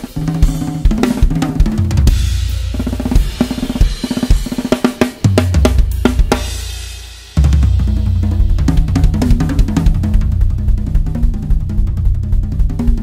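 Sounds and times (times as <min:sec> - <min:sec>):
drum kit playing a groove: 0:00.0 - 0:13.0
low drum ringing out: 0:07.4 - 0:13.0.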